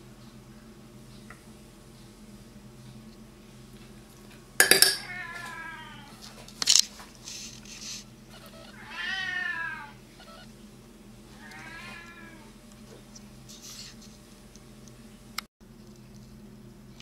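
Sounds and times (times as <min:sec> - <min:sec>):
cat meowing: 0:05.0 - 0:06.2, 0:08.3 - 0:10.5, 0:11.4 - 0:12.5.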